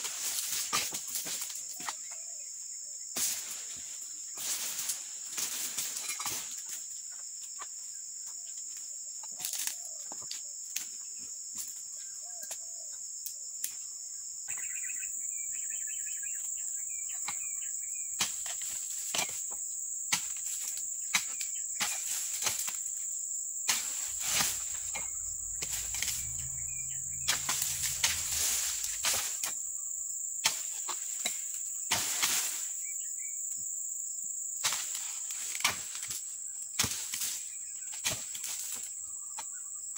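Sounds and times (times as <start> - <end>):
insects droning: 0.0 - 39.9
chisel chopping palm fronds: 20.1 - 22.9, 34.6 - 36.1, 36.8 - 38.8.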